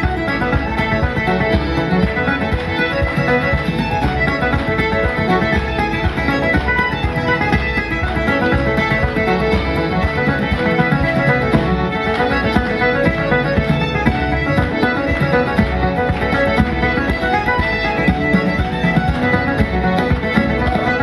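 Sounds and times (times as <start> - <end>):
banjo: 0.0 - 21.0
fiddle: 0.0 - 21.0
frame drum beat: 0.0 - 21.0
piano accordion: 0.0 - 21.0.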